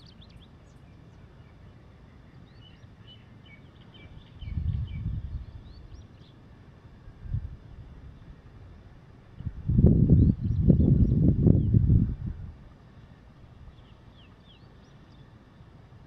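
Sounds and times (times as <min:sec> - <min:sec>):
wind buffeting microphone: 0:04.1 - 0:06.2, 0:06.9 - 0:14.1.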